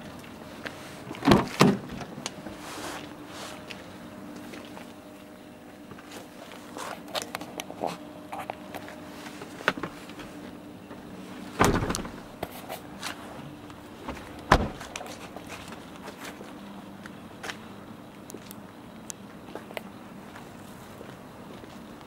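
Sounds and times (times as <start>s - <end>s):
steady low hum: 0.0s - 22.0s
car door thudding shut: 11.6s - 12.4s, 14.1s - 14.9s.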